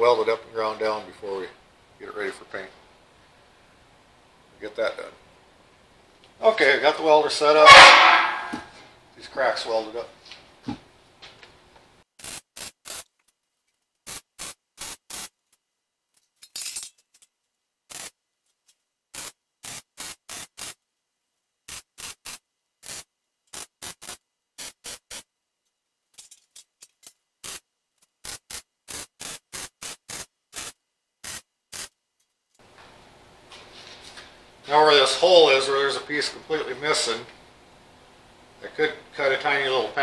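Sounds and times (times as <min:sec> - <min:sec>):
welding arc crackle: 0:12.2 - 0:13.2, 0:14.0 - 0:15.4, 0:17.9 - 0:18.2, 0:19.1 - 0:20.8, 0:21.7 - 0:25.3, 0:27.0 - 0:32.0.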